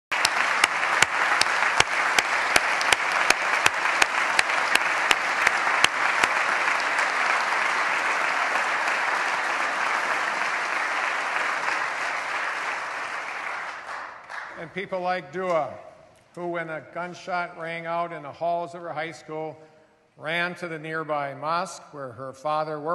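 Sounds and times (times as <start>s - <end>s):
audience applauding: 0.1s - 14.8s
sharp rhythmic claps: 0.1s - 15.6s.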